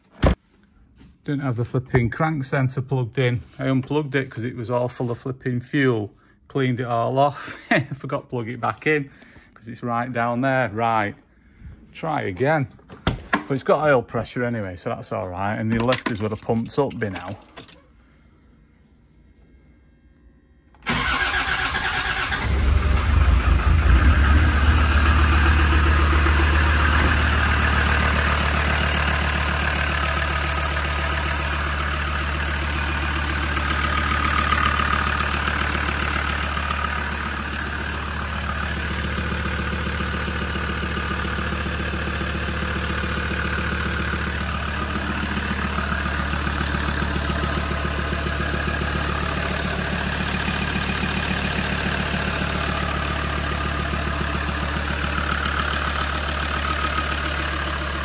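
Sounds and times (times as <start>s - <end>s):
diesel engine starting and idling: 20.6s - 58.0s.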